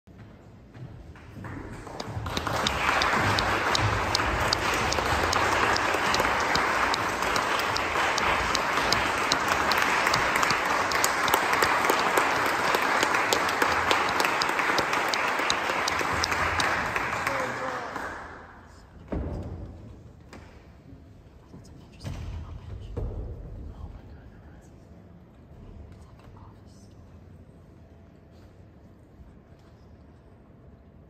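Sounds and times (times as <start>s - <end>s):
audience applauding: 1.4s - 18.8s.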